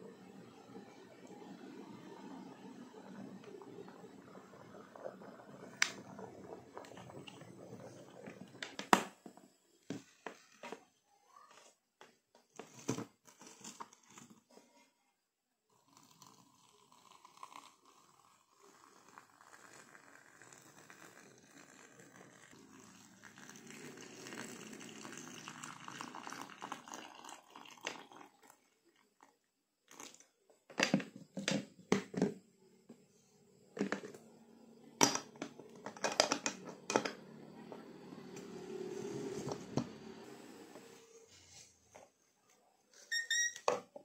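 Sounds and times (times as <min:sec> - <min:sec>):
water pouring into teapot: 0:00.0 - 0:09.0, 0:15.8 - 0:29.3.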